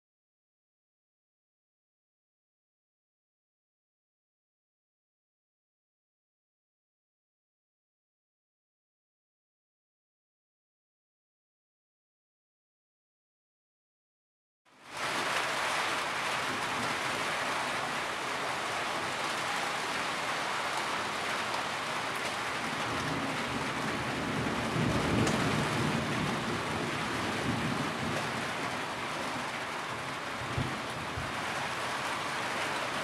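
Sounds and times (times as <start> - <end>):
heavy rain pouring: 14.8 - 33.0.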